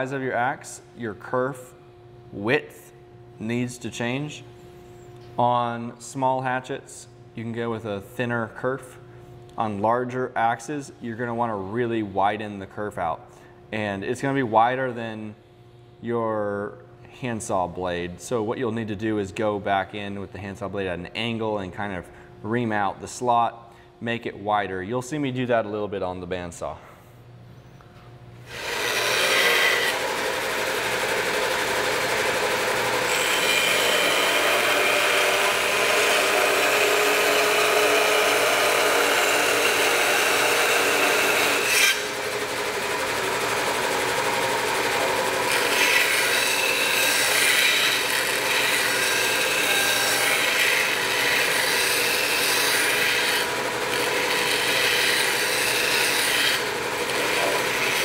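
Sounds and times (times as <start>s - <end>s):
bandsaw cutting wood: 28.5s - 58.0s.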